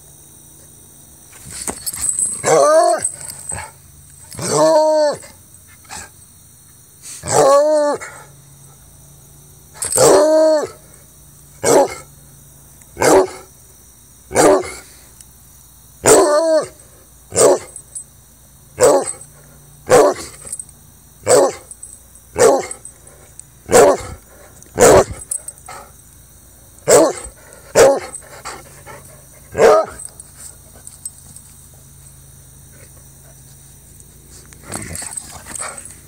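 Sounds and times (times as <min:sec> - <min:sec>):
dog barking and baying: 0:02.4 - 0:03.7, 0:04.3 - 0:05.3, 0:07.2 - 0:08.2, 0:09.8 - 0:10.8, 0:11.6 - 0:12.1, 0:13.0 - 0:13.5, 0:14.3 - 0:14.8, 0:16.0 - 0:17.8, 0:18.8 - 0:19.2, 0:19.9 - 0:20.4, 0:21.2 - 0:21.7, 0:22.4 - 0:22.9, 0:23.7 - 0:24.2, 0:24.8 - 0:25.9, 0:26.8 - 0:30.1.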